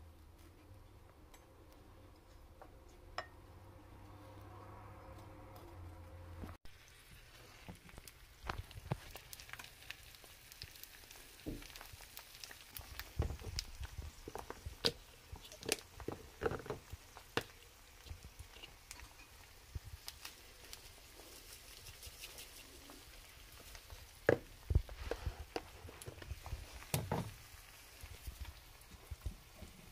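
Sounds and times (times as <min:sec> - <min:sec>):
egg sizzling in oil: 0:06.6 - 0:29.9.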